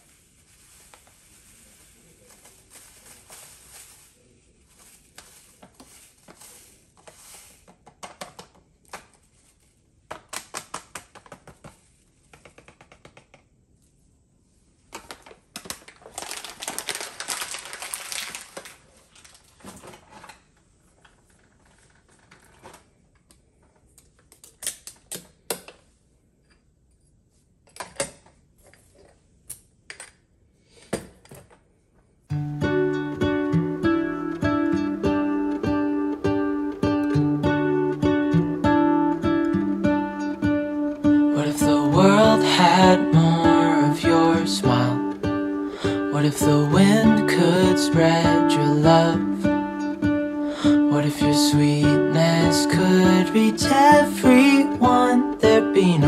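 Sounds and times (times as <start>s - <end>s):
bag rustling: 0.0s - 7.7s, 15.9s - 22.9s.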